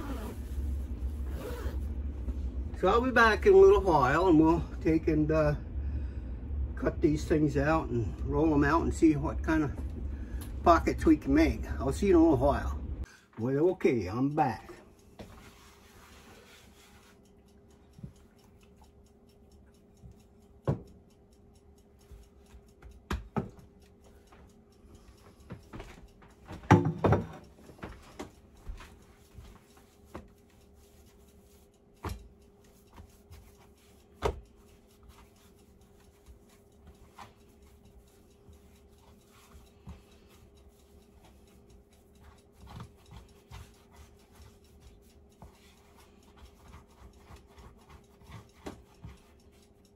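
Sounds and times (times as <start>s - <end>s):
faint steady hum: 0.0s - 49.9s
hands kneading dough on wooden board: 15.1s - 17.2s, 25.4s - 49.8s.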